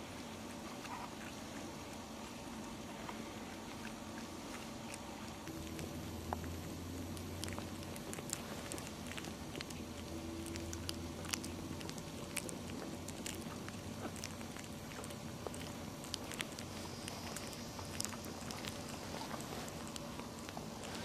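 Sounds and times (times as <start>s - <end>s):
low room hum: 0.0s - 21.0s
puppies clicking and smacking: 0.0s - 21.0s.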